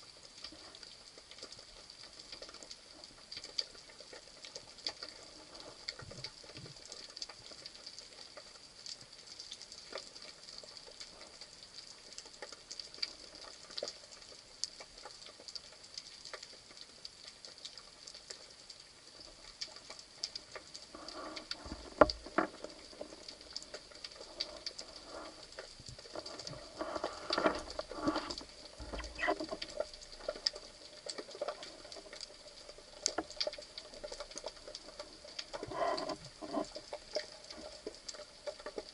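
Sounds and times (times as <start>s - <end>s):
underwater crackle of fine clicks: 0.0s - 38.9s
uneven underwater pulsing: 20.8s - 37.6s.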